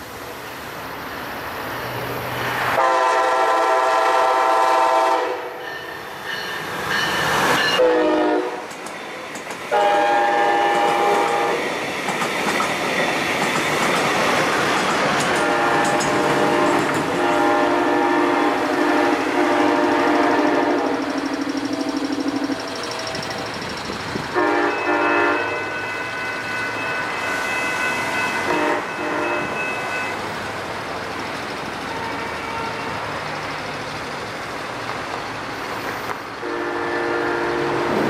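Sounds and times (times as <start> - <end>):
train horn blasts: 2.8 - 5.6, 7.8 - 8.7, 9.7 - 11.6, 15.3 - 21.1, 24.3 - 30.2, 31.9 - 33.0, 36.4 - 38.0
train cars clattering on rails: 5.6 - 26.0.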